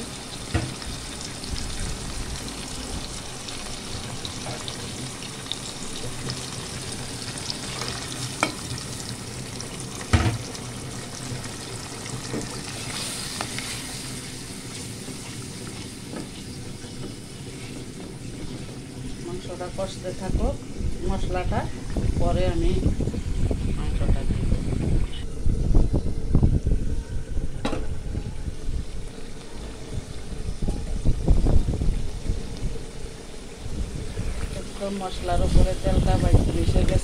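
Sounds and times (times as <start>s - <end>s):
paste sizzling in hot oil: 0.0s - 24.6s.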